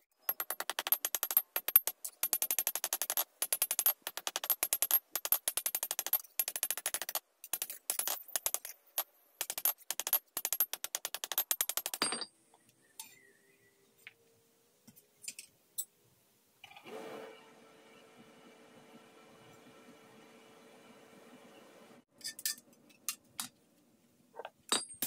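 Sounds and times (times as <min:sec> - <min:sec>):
metal clinks: 0:24.7 - 0:25.0.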